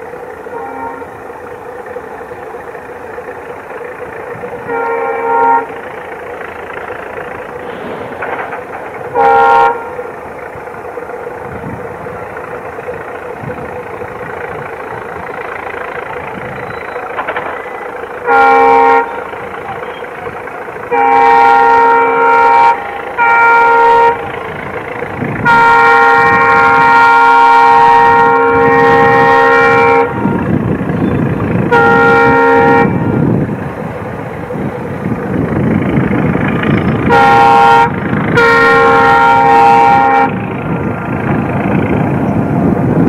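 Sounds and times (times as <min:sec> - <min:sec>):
low rumble of train: 0:00.0 - 0:43.0
locomotive horn blasts: 0:00.4 - 0:01.3, 0:04.5 - 0:06.0, 0:07.6 - 0:10.2, 0:16.0 - 0:33.5, 0:36.5 - 0:41.6.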